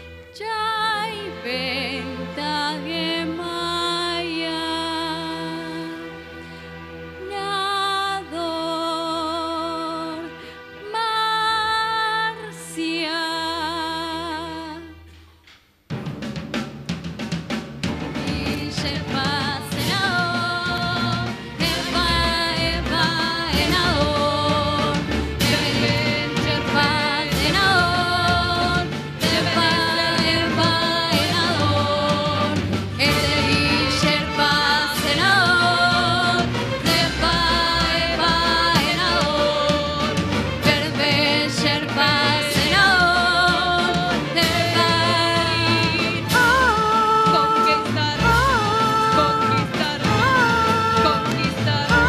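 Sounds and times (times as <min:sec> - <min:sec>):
orchestral music: 0:00.0 - 0:15.0, 0:15.9 - 0:52.0
steady percussive beat: 0:15.8 - 0:52.0
person singing with vibrato: 0:18.2 - 0:52.0.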